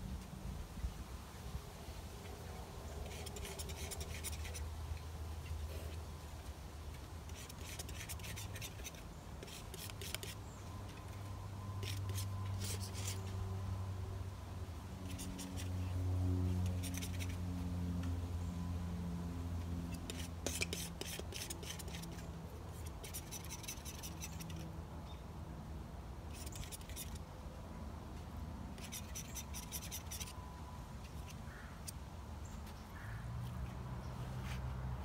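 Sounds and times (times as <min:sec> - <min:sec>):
low steady hum: 0:00.0 - 0:35.0
paintbrush scratchy strokes: 0:02.2 - 0:04.7, 0:07.2 - 0:13.4, 0:15.0 - 0:17.4, 0:19.9 - 0:24.7, 0:26.3 - 0:27.2, 0:28.8 - 0:30.4.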